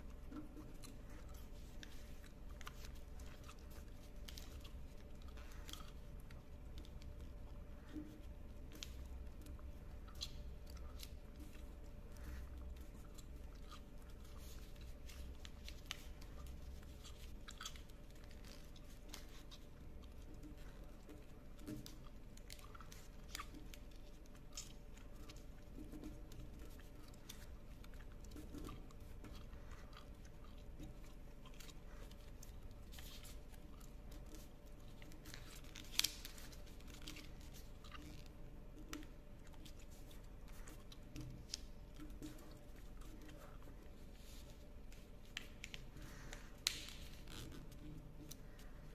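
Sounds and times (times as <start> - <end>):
paper rustling and crinkling: 0.2 - 48.9
sharp paper crackle: 35.0 - 38.3.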